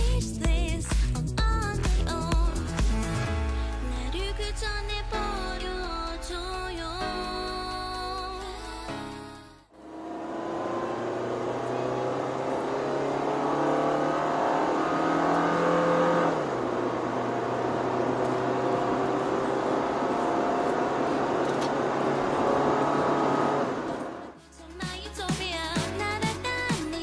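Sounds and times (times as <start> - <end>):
car engine accelerating: 9.8 - 24.4
tyre and road noise: 9.9 - 24.3.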